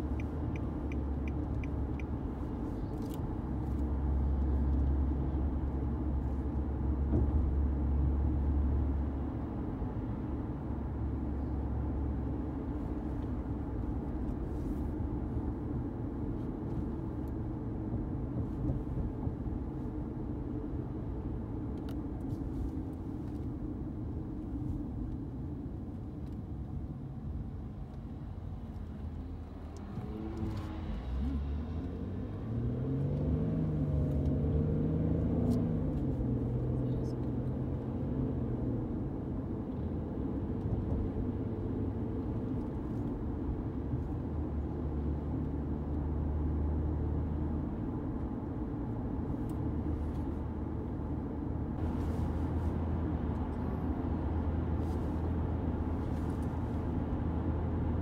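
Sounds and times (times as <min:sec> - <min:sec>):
car driving from inside: 0:00.0 - 0:58.0
car engine accelerating: 0:28.7 - 0:38.4.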